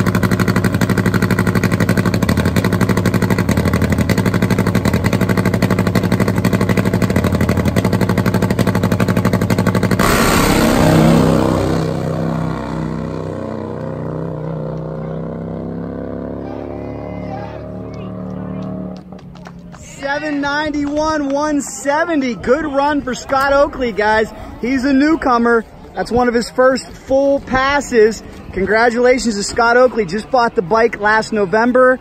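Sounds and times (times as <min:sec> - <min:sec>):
motorcycle launching at full throttle: 0:00.0 - 0:19.1
drag bike engine running: 0:00.0 - 0:19.2.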